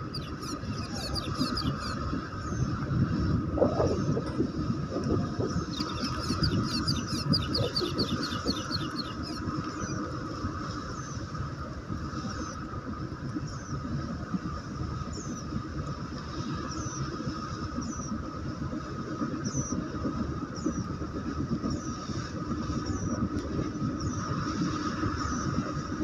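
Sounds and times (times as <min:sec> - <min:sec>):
bird chirping: 0:00.0 - 0:02.0, 0:05.7 - 0:10.0
low rumble: 0:00.0 - 0:15.0
faint constant hum: 0:00.0 - 0:26.0.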